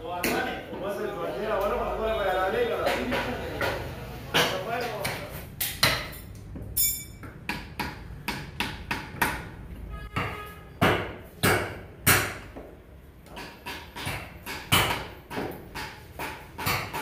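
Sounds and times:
knife chopping on wooden block: 13.3 - 17.0.

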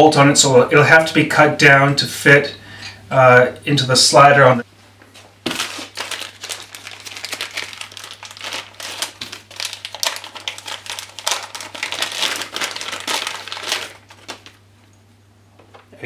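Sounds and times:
plastic packaging crinkling: 5.4 - 14.7.

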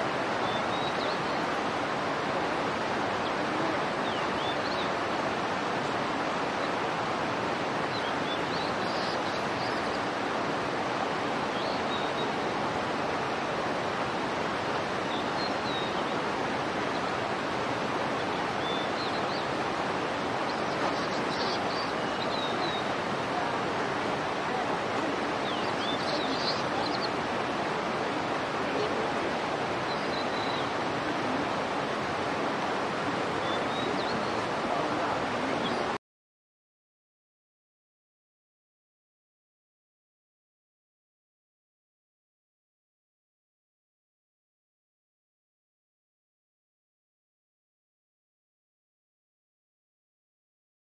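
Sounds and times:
flowing water rushing: 0.0 - 36.0.

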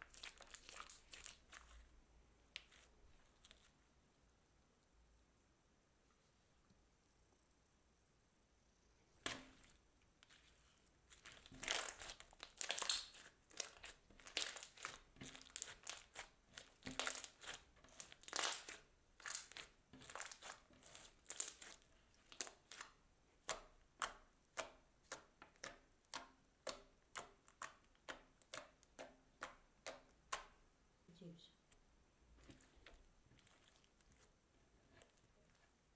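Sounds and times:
slime crackling pops: 11.1 - 22.8.

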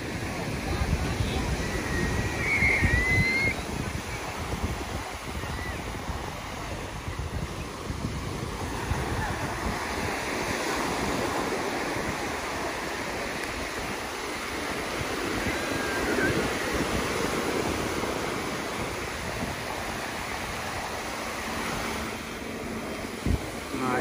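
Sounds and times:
waves breaking on a beach: 0.0 - 24.0.

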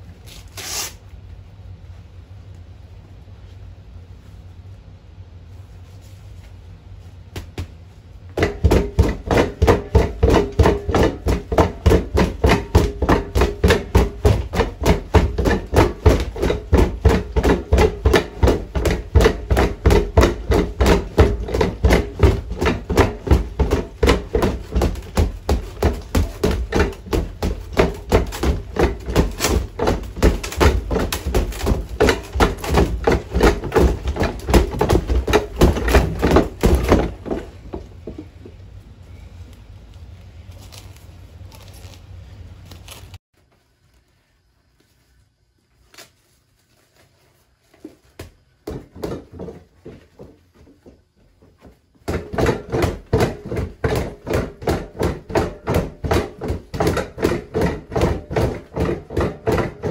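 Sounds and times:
gloves punching heavy bag: 8.4 - 37.8, 52.0 - 59.9.

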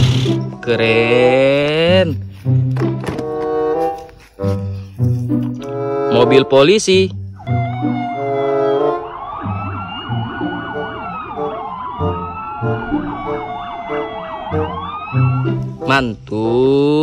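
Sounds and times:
police siren fast yelp: 7.4 - 15.6
police siren slow wail: 7.4 - 15.8.

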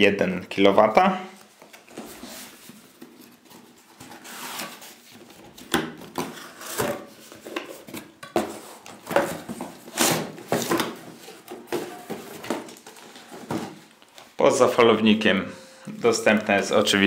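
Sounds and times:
cardboard rustling and scraping: 1.5 - 14.4.

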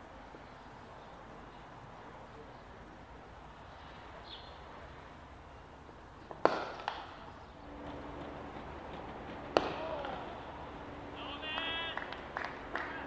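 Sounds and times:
open-air ground hush: 0.0 - 13.0
cricket bat striking ball: 6.4 - 7.2, 7.9 - 10.3.

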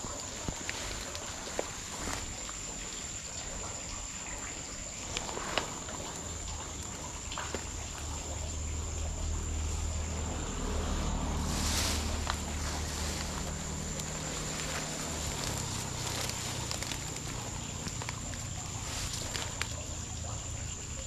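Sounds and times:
brushing hiss: 0.0 - 21.0
night insects droning: 0.0 - 21.0
footsteps in grass: 0.2 - 2.6, 10.4 - 20.0.

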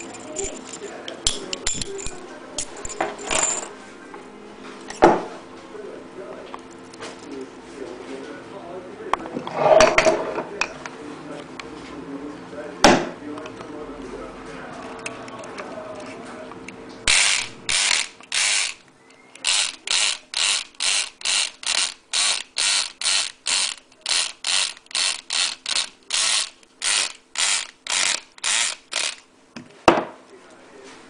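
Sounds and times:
pins rattling in padlock: 0.0 - 3.7, 19.4 - 29.2
electric lock pick gun buzzing: 17.1 - 29.3.

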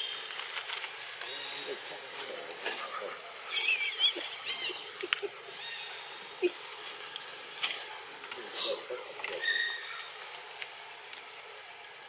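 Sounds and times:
high-pitched animal calls: 2.8 - 6.6, 8.6 - 10.2.

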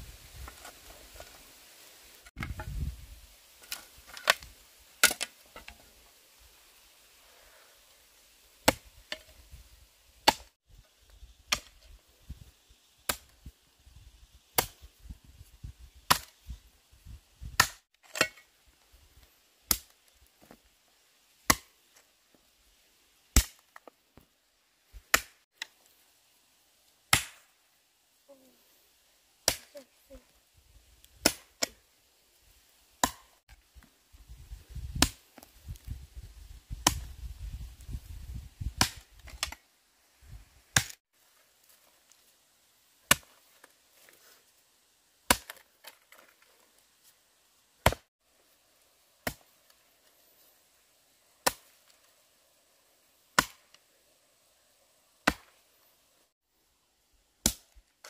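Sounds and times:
hand tool chopping: 10.2 - 10.5, 33.0 - 33.3, 47.8 - 48.1, 53.4 - 53.6, 55.2 - 55.5.

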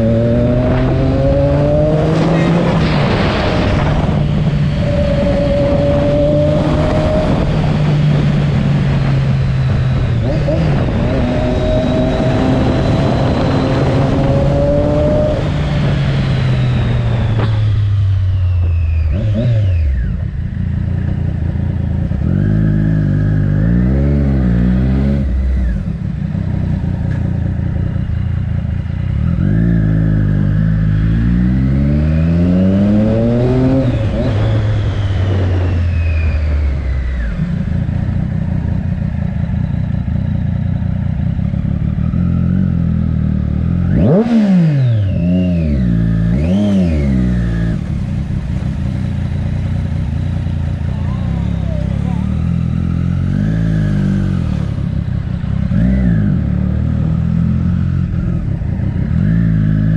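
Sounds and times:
wind rushing: 0.0 - 18.0
motorcycle engine revving: 0.0 - 59.9.

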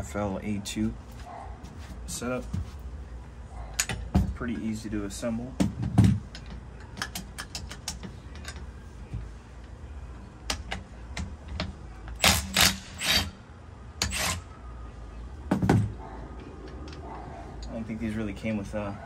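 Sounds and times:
metal clicks and knocks: 5.6 - 8.7, 10.4 - 12.2
impact wrench hammering: 10.5 - 13.3.

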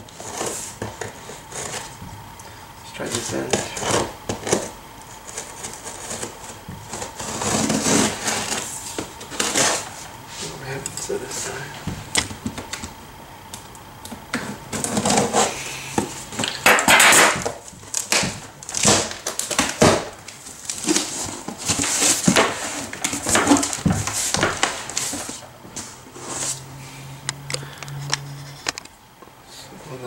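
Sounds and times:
cardboard flaps rustling: 2.9 - 13.0, 14.4 - 26.6
packing tape peeling: 3.1 - 10.0, 16.4 - 25.4.

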